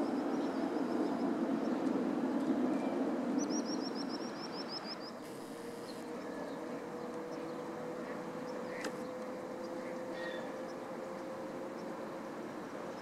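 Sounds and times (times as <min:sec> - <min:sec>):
jet engines droning: 0:00.0 - 0:13.0
bird chirping: 0:08.4 - 0:10.8.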